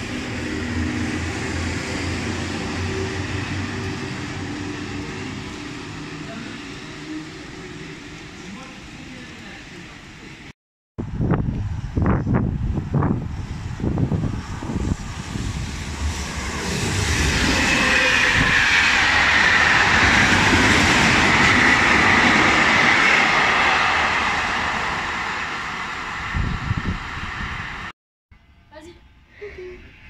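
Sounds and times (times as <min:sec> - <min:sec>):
train wheels on rail: 0:00.0 - 0:10.5, 0:11.2 - 0:27.9
wind buffeting microphone: 0:11.0 - 0:27.9.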